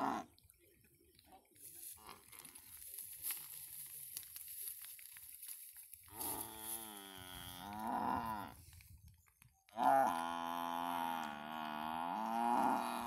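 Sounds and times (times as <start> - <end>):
water buffalo bellowing: 9.8 - 13.0.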